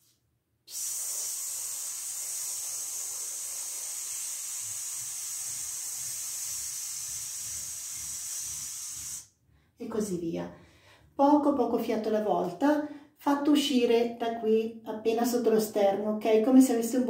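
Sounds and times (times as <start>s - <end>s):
man exhaling through mouth: 0.7s - 9.3s.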